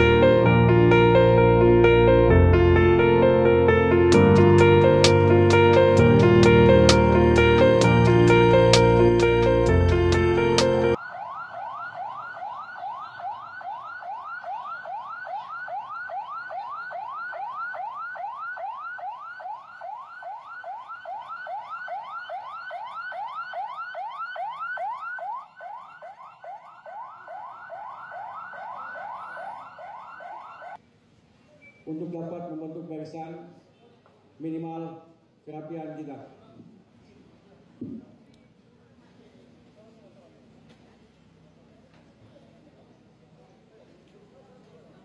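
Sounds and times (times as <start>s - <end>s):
emergency siren yelping: 0.0s - 30.8s.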